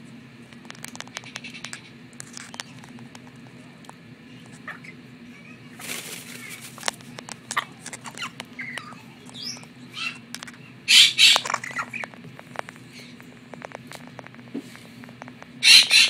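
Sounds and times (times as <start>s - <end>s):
parrot beak clicking and crunching: 0.5s - 4.9s, 6.4s - 14.4s
parrot chirps: 8.1s - 10.2s, 10.9s - 12.1s, 15.6s - 16.0s
parrot squawks: 8.2s - 10.2s, 10.9s - 12.0s, 15.6s - 16.0s.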